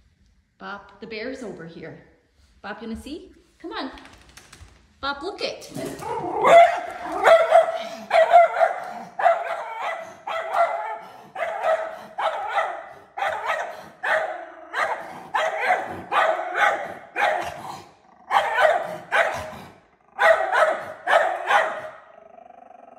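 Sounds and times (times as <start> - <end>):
small dog barking sharply: 6.2 - 17.6, 18.3 - 19.6, 20.2 - 22.0.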